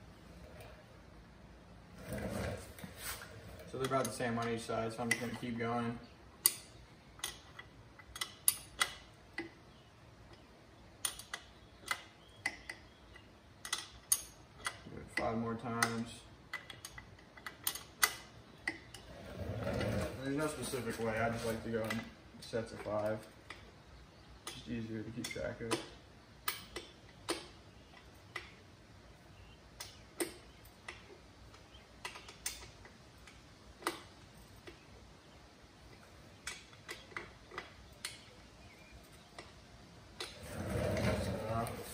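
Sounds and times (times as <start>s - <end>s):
wrench clicking on bolt: 6.4s - 9.6s, 11.0s - 19.0s.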